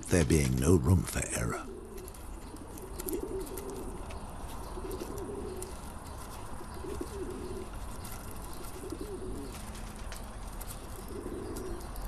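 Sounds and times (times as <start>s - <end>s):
pigeon cooing: 1.4s - 9.8s, 10.9s - 12.0s.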